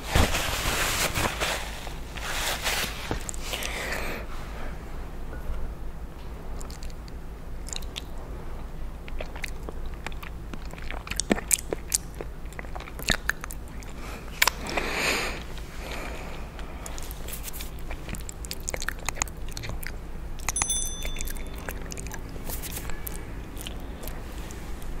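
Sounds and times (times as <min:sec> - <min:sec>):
bright ringing clink: 0:20.6 - 0:22.0.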